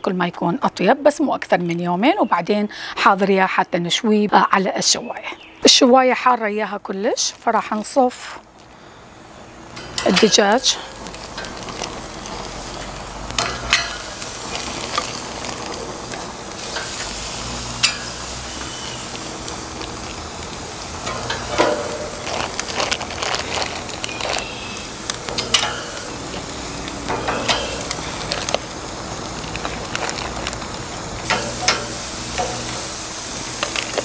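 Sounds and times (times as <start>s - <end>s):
chicken sizzling on a grill: 8.6s - 34.0s
sharp clicks and crackles: 9.7s - 34.0s.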